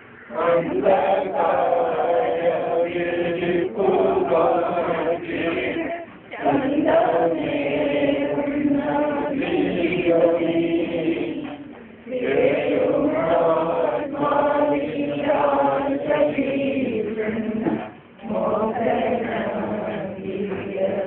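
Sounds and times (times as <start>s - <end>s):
group singing prayer chant: 0.0s - 21.0s.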